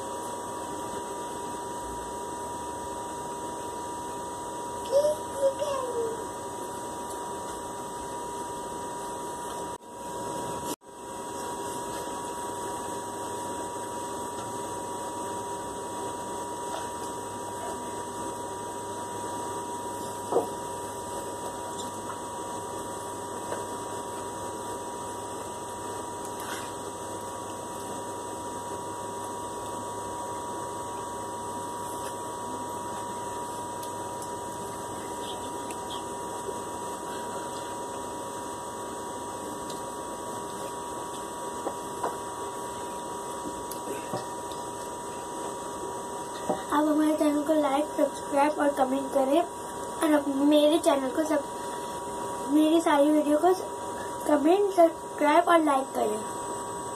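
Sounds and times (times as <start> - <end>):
high hum: 0.0 - 56.9.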